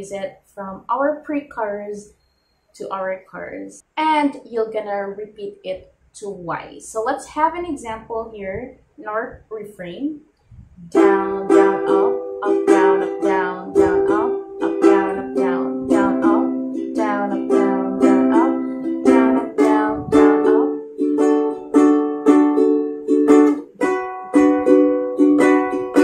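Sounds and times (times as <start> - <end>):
ukulele strumming: 10.8 - 26.0.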